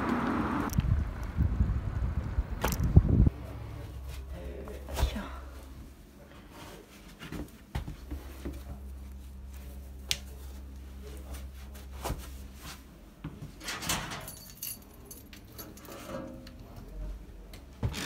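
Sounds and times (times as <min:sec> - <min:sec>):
steady low hum: 0:00.5 - 0:13.7
locker door opening: 0:13.6 - 0:14.6.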